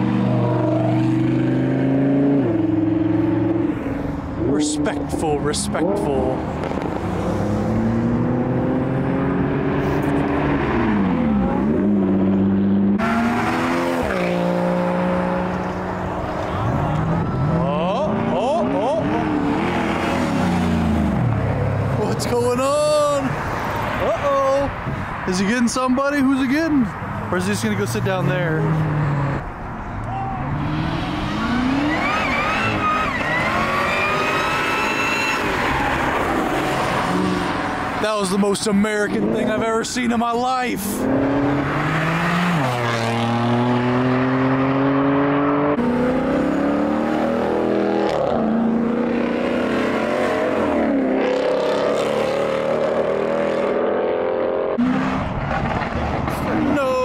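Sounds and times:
sports car engines revving: 0:00.0 - 0:57.0.

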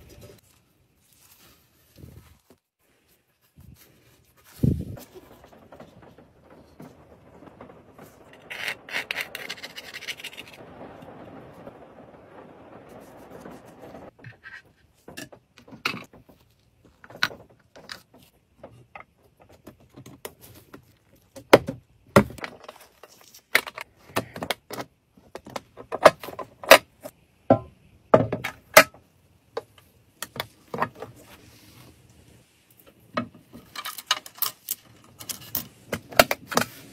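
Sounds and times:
soft rubbing: 0:00.0 - 0:15.0.

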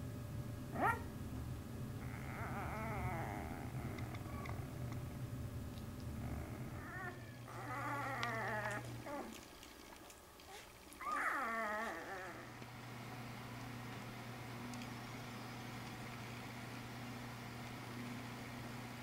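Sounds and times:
steady low hum: 0:00.0 - 0:19.0
puppies whimpering: 0:02.0 - 0:04.8, 0:06.2 - 0:09.4, 0:10.5 - 0:12.6.

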